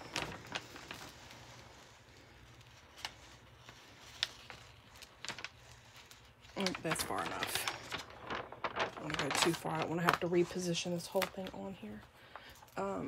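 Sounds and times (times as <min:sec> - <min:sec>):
plastic film crackling: 0:00.0 - 0:13.0.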